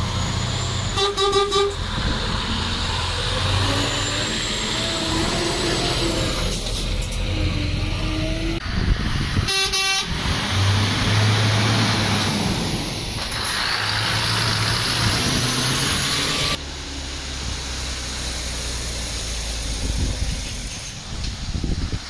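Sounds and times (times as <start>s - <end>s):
lorry diesel engine pulling away: 0.0s - 9.4s, 10.1s - 22.0s
road noise: 0.0s - 22.0s
horn blast: 0.9s - 1.8s, 9.5s - 10.2s.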